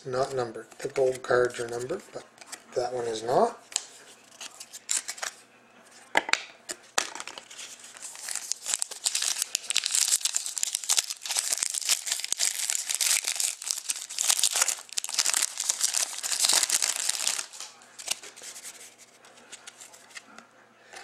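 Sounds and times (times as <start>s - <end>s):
shiny wrapper crinkling: 7.0s - 20.2s.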